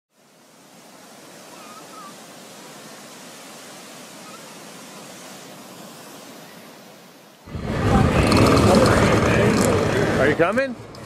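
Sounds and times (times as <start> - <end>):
steady rushing noise: 2.6 - 11.0.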